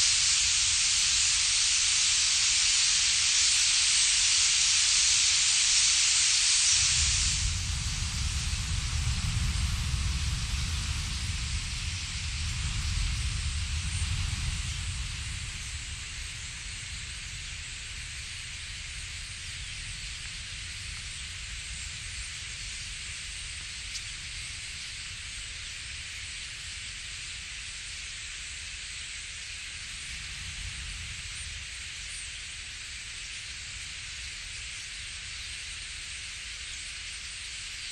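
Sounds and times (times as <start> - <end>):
starling flock rushing hiss: 0.0 - 37.9
wind on microphone: 6.6 - 25.3, 29.8 - 32.1.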